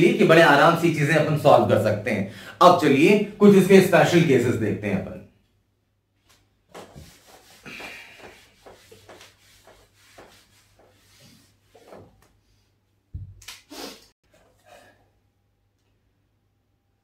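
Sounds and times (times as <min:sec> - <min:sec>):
whiteboard being wiped: 0:06.2 - 0:12.6
knock and scrape: 0:06.7 - 0:12.2.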